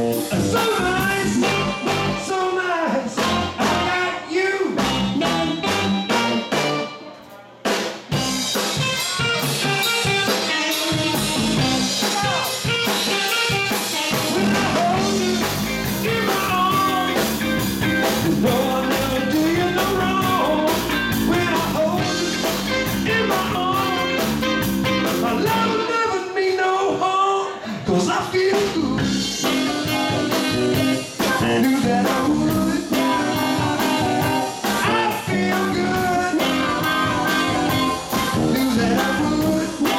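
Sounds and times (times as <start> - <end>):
drum kit: 0.0 - 2.4, 3.1 - 25.9, 28.1 - 39.9
saxophone lead: 0.0 - 2.5, 3.2 - 4.2, 4.8 - 7.1, 8.2 - 26.2, 29.0 - 39.9
electric guitar: 0.0 - 7.2, 8.1 - 26.2, 27.4 - 39.9.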